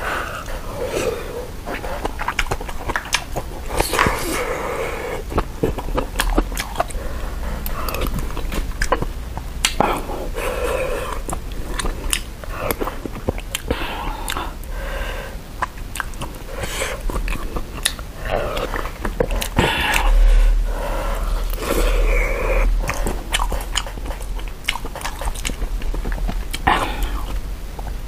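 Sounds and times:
person chewing and slurping broth: 0.0 - 28.0
mouth smacks and clicks: 1.7 - 4.6, 5.2 - 14.7, 15.6 - 28.0.

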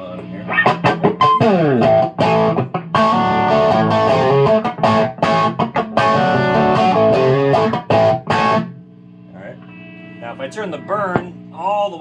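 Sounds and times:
overdriven electric guitar: 0.0 - 8.8
low electrical hum: 0.0 - 12.0.

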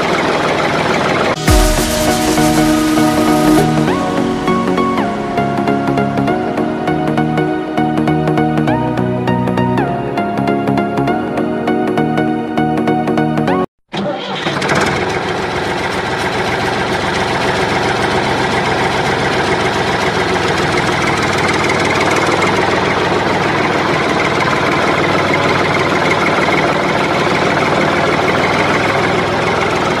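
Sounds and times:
tractor engine running: 14.0 - 30.0.

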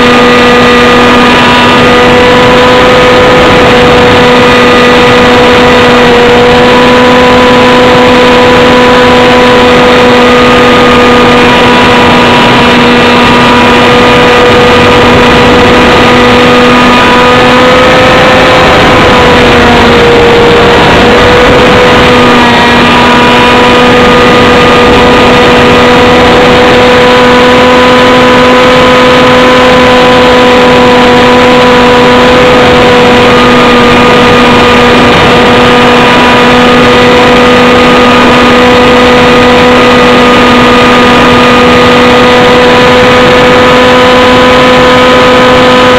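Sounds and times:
small aircraft engine running: 0.0 - 45.9
airflow noise over camera: 8.6 - 27.1.

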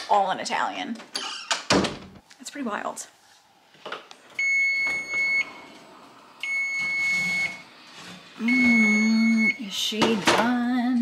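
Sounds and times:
oven timer beeping: 4.4 - 5.6, 6.4 - 7.7, 8.4 - 9.8.

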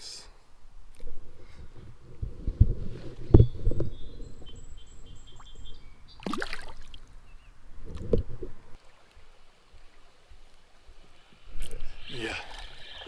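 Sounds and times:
water splashing and gurgling: 6.2 - 7.2.

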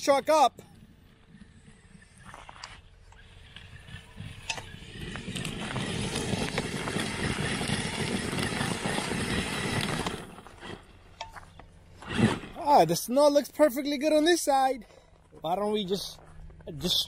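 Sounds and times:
tires churning snow: 0.0 - 11.2, 11.9 - 14.2
rc truck motor roaring: 0.8 - 11.2, 11.8 - 12.7.

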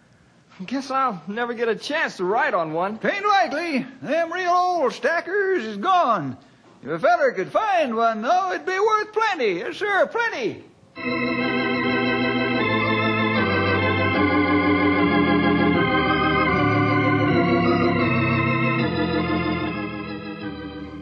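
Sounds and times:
organ sustained chords: 11.0 - 21.0.

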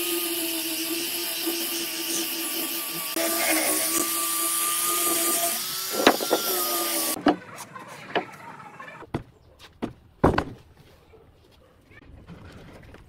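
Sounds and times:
angle grinder sanding wood: 0.0 - 9.0.

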